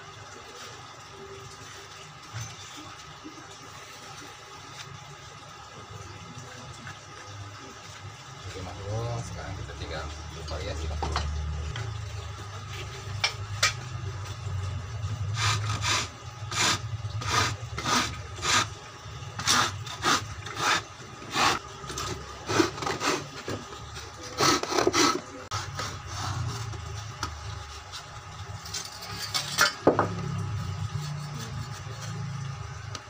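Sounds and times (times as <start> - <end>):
hand saw cutting wood: 15.4 - 18.7, 19.4 - 23.4, 24.2 - 26.4.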